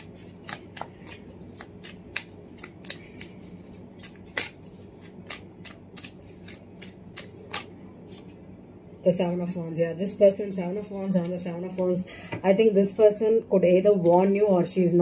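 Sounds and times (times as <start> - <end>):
cards being shuffled: 0.0 - 8.3.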